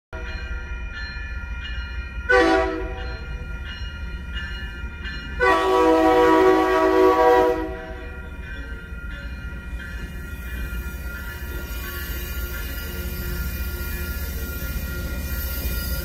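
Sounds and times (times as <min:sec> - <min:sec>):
crossing warning bells dinging: 0:00.1 - 0:16.0
train horn: 0:02.3 - 0:03.1, 0:05.4 - 0:08.0.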